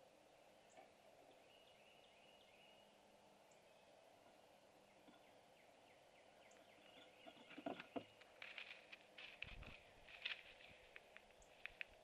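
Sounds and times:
scrapes and knocks on wooden box: 7.2s - 8.7s.

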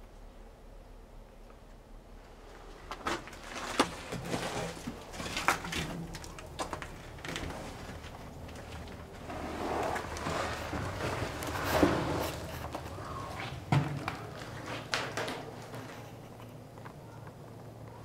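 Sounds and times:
shuffling noise: 7.3s - 17.3s.

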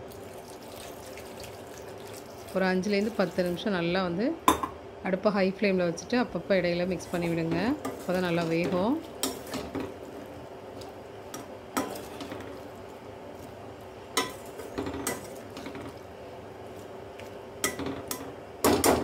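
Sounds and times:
ladle stirring simmering curry: 7.0s - 18.2s.

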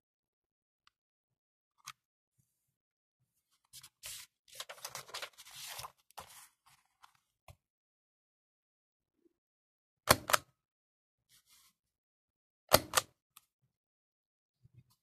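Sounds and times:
paper rustling and crackling: 3.8s - 7.0s
small stamp clicks: 12.7s - 13.1s.

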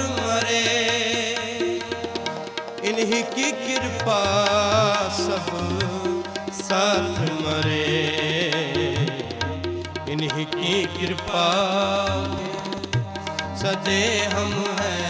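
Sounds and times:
harmonium chords: 0.0s - 15.0s
tabla beat: 0.0s - 15.0s.

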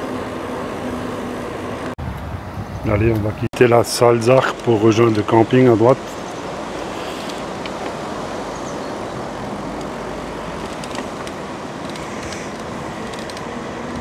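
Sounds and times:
wind on microphone: 2.0s - 3.5s
bicycle tyres rolling: 4.3s - 14.0s.

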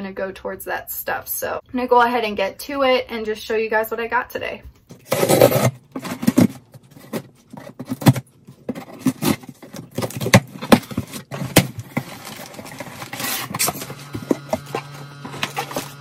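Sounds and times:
box knocking and scraping: 4.9s - 16.0s
packaging rustle: 5.0s - 16.0s.

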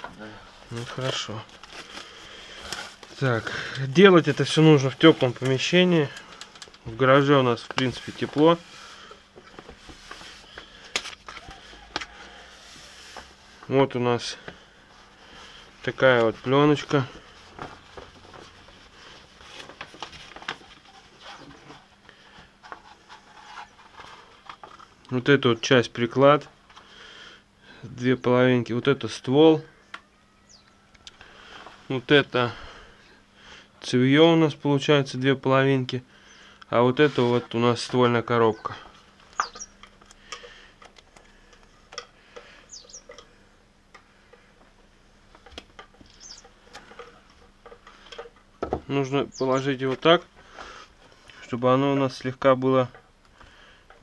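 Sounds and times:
plastic film rustling: 0.0s - 14.0s, 14.8s - 25.0s
faint steady hum: 0.0s - 54.0s.

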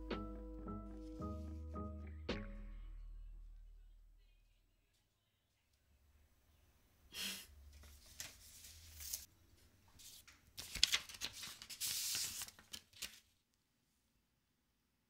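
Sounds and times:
paper rustling and crinkling: 7.7s - 9.3s, 9.9s - 13.4s.

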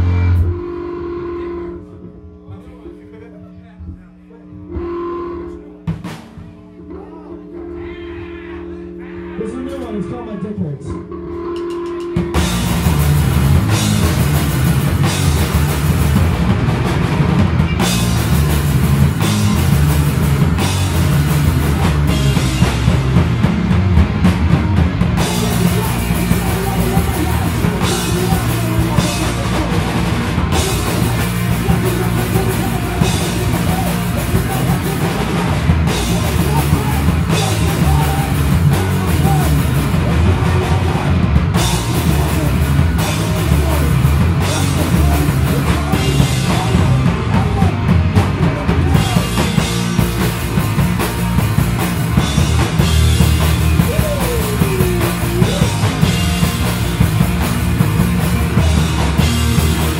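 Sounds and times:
electric guitar: 0.0s - 9.0s, 10.9s - 59.9s
bass guitar: 0.0s - 59.9s
drum kit and cymbal hits: 4.6s - 6.8s, 11.4s - 59.9s.

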